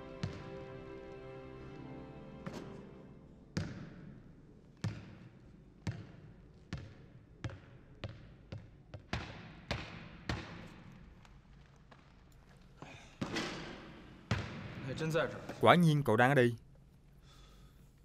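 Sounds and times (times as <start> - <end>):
basketball bouncing on gym floor: 3.6 - 10.9, 13.2 - 14.8.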